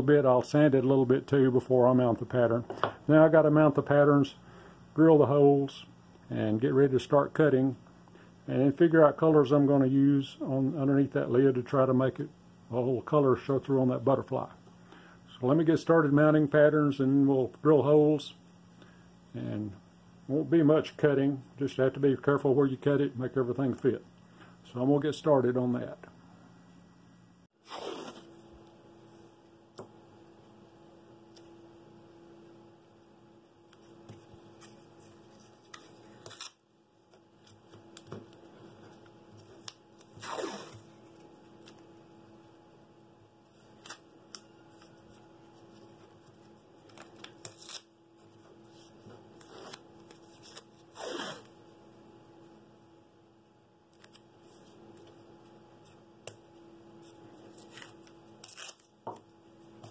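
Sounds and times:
tape ripping off roll: 27.6 - 28.4, 40.0 - 40.9.

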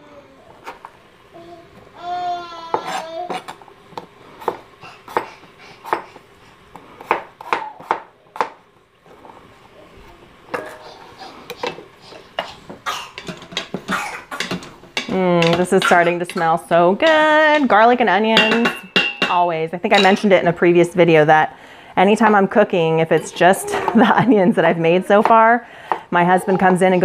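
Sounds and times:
knife chopping on cutting board: 7.0 - 8.6
utensil clattering in metal pot: 13.1 - 19.4.

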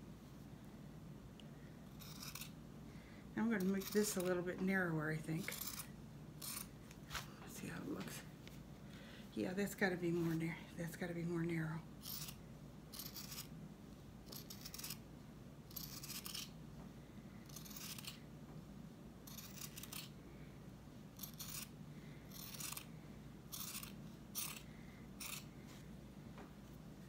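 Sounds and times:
scissors snipping felt: 19.3 - 20.1, 23.5 - 25.5.

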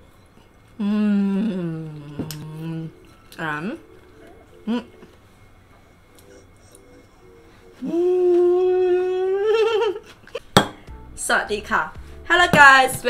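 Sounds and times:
person humming: 0.8 - 5.2, 6.2 - 10.0.

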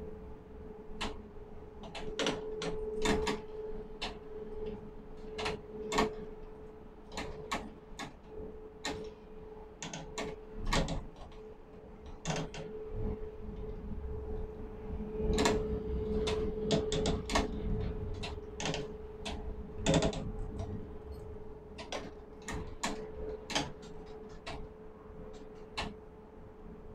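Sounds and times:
machinery hum: 0.0 - 26.9
mechanical clicks and clacks: 1.8 - 4.2, 9.8 - 11.4, 12.1 - 12.7, 15.3 - 15.6, 16.2 - 20.8, 21.8 - 24.7, 25.3 - 26.0.

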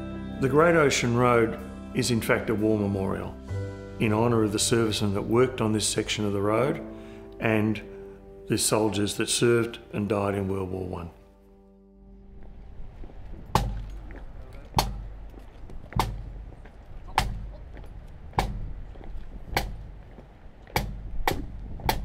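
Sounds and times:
faint low background murmur: 14.0 - 18.0
sharp evenly spaced beats: 16.0 - 16.4, 17.1 - 17.6.

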